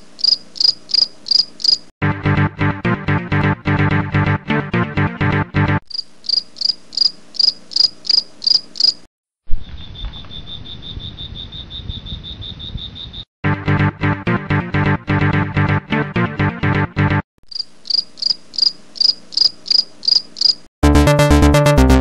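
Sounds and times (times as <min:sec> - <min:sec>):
cricket chirping: 0:00.0 - 0:01.8, 0:05.9 - 0:13.3, 0:17.5 - 0:20.7
music with steady beat: 0:20.8 - 0:22.0.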